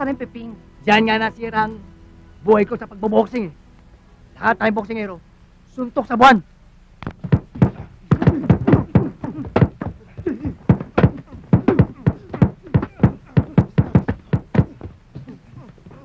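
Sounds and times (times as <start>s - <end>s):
gloved punches on heavy bags: 7.2s - 15.0s.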